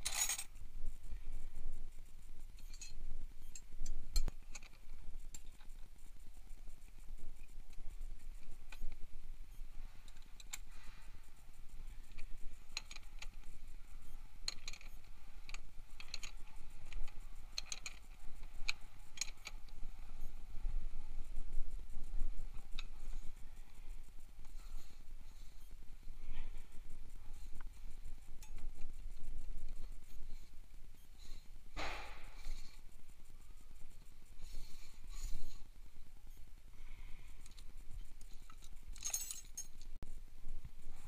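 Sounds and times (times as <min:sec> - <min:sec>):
wrenches clinking in toolbox: 0:38.6 - 0:39.8.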